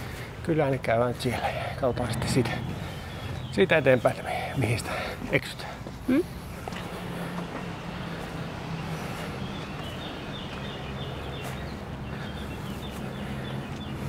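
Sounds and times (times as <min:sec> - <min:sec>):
engine humming: 0:01.2 - 0:11.5
bird chirping: 0:01.8 - 0:05.0.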